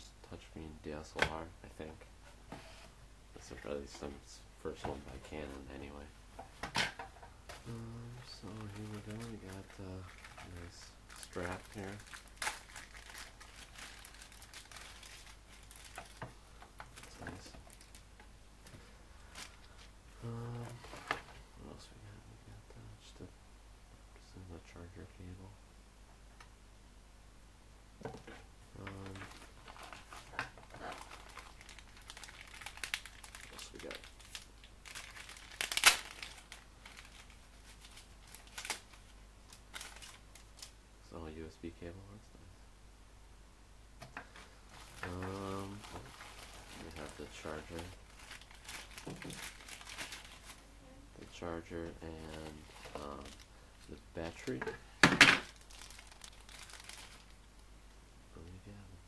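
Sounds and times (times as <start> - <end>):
plastic bag rustling: 7.5 - 18.2, 18.8 - 19.9, 28.3 - 40.7, 44.3 - 57.5
plastic wrapper crinkling: 7.6 - 18.2, 19.2 - 21.3, 28.8 - 40.8, 44.3 - 57.6.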